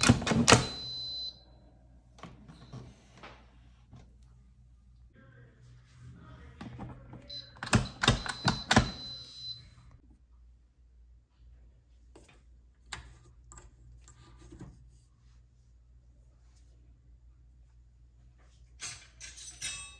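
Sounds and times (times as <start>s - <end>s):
low steady hum: 0.0s - 19.9s
utensils and cookware clattering: 18.7s - 19.9s.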